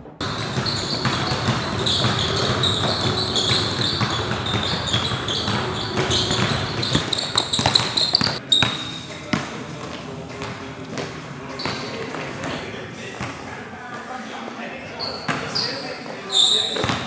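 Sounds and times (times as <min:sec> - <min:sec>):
basketballs bouncing on wooden floor: 0:00.1 - 0:08.8, 0:16.7 - 0:17.0
sneaker squeaks: 0:00.2 - 0:09.2, 0:11.5 - 0:12.6, 0:14.9 - 0:17.0.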